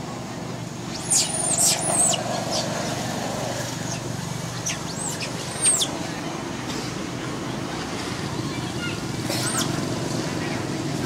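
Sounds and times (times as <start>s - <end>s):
low rumble of background noise: 0.0s - 11.0s
monkeys squealing: 0.9s - 2.8s, 4.6s - 6.0s.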